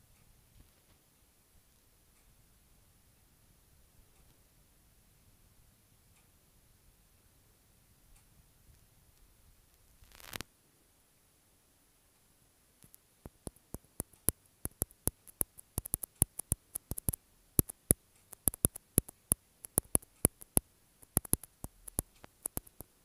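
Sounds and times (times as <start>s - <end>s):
short sharp clicks: 12.8s - 22.9s.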